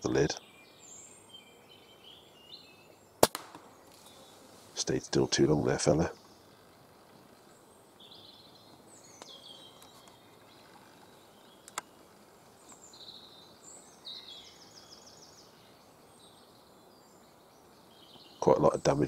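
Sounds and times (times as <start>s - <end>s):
background hiss: 0.0s - 19.0s
birds chirping and trilling: 0.0s - 19.0s
sharp click: 3.2s - 3.6s.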